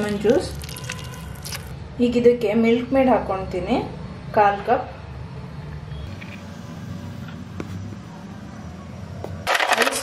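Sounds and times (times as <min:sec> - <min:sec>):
ice cubes clattering into a jar: 0:00.0 - 0:01.7, 0:09.5 - 0:10.0.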